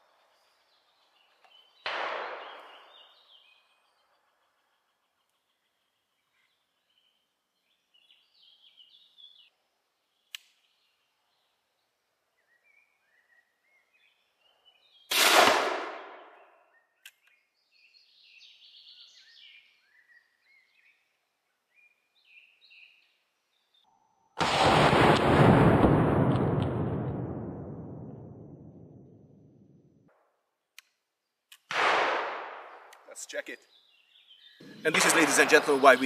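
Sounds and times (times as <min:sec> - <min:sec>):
faint birdsong: 0:00.0 - 0:15.2, 0:16.0 - 0:24.4, 0:30.3 - 0:31.7, 0:32.6 - 0:36.0
rifle shot: 0:01.8 - 0:02.9, 0:15.1 - 0:16.4, 0:24.4 - 0:28.8, 0:31.7 - 0:32.9, 0:34.9 - 0:36.0.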